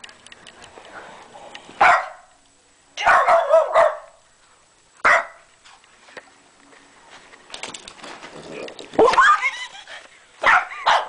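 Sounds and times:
dog barking: 0:01.8 - 0:02.3, 0:03.0 - 0:04.2, 0:05.0 - 0:05.5, 0:10.4 - 0:11.0.

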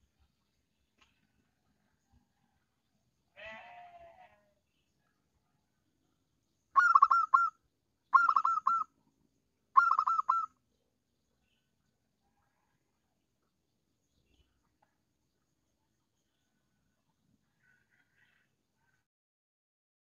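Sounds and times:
fainter lower bird call: 0:06.7 - 0:09.0, 0:09.7 - 0:10.6, 0:17.5 - 0:19.0
dove cooing in staccato bursts: 0:06.8 - 0:07.5, 0:08.2 - 0:08.8, 0:09.8 - 0:10.5.

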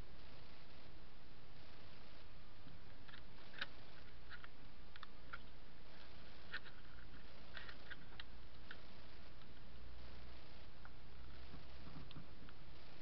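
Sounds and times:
background hiss: 0:00.0 - 0:13.0
low hum: 0:00.0 - 0:13.0
small plastic clicks: 0:02.6 - 0:08.8.

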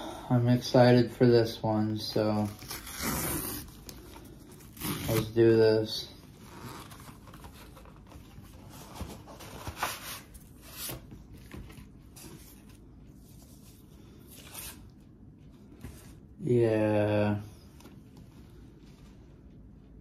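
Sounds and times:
packaging tearing and rustling: 0:02.4 - 0:05.4.

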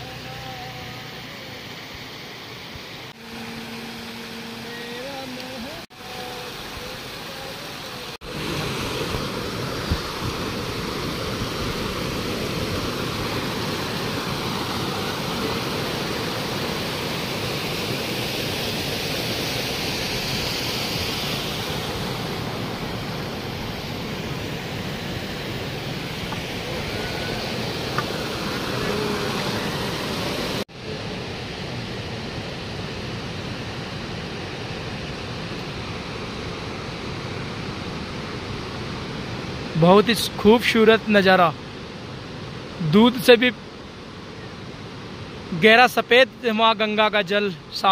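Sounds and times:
stream splashing over rocks: 0:03.1 - 0:30.6
steady rushing noise: 0:07.9 - 0:38.8.

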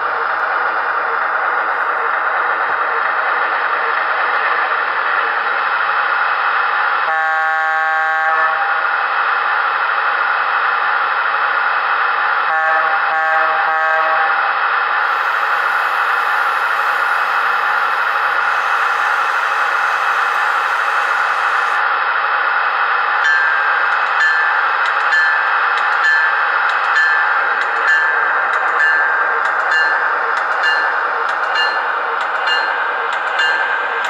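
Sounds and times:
electric locomotive running hum: 0:00.0 - 0:34.0
train air horn: 0:07.1 - 0:08.8, 0:12.5 - 0:14.3.

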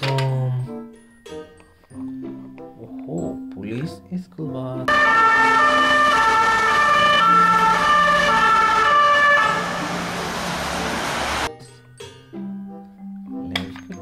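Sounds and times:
two-tone police siren: 0:04.9 - 0:11.5
street traffic hiss: 0:09.4 - 0:11.5.

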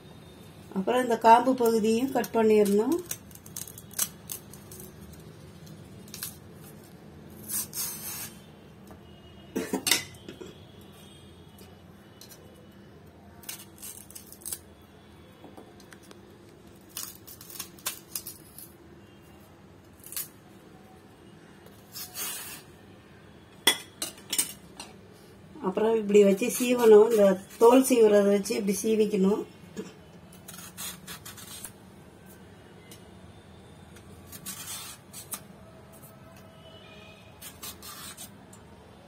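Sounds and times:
knife cutting plantain: 0:21.8 - 0:22.7, 0:30.4 - 0:31.8, 0:34.2 - 0:35.5, 0:37.4 - 0:38.3.

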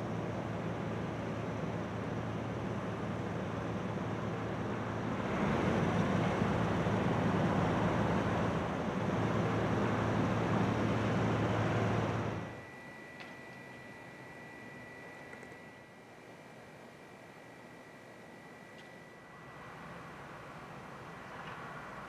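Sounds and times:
low engine hum: 0:00.0 - 0:12.8
traffic noise: 0:18.8 - 0:22.0.

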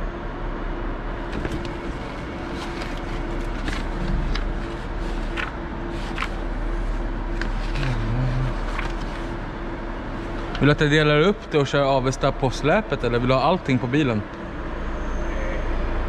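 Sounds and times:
steady machine hum: 0:00.0 - 0:16.0
paper sheets rustling: 0:01.3 - 0:10.8.

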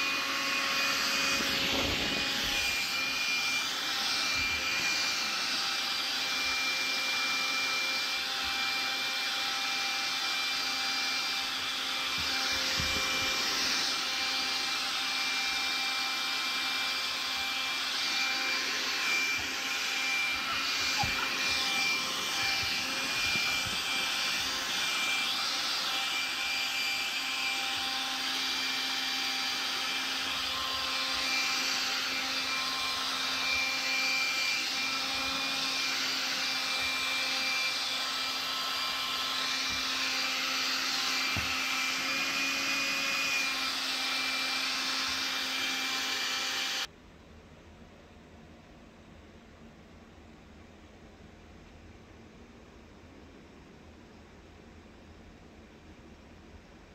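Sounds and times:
stick vacuum cleaner running: 0:00.0 - 0:46.9.

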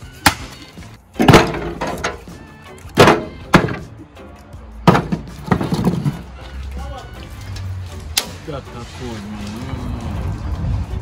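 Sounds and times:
firewood knocking into metal drum: 0:01.2 - 0:02.3, 0:02.9 - 0:03.9, 0:04.8 - 0:06.3.

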